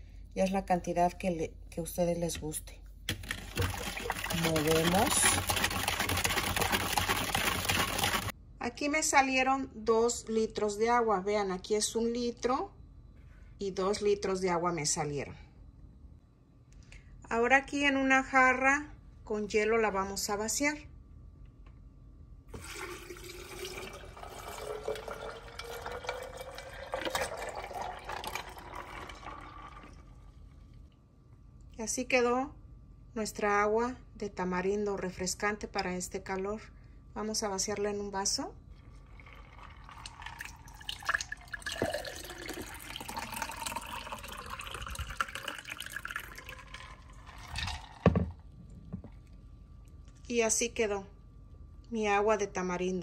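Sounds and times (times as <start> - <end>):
ice cubes clicking: 3.1 - 8.3
water pouring into pitcher: 3.1 - 8.3, 22.5 - 30.5, 39.0 - 48.4.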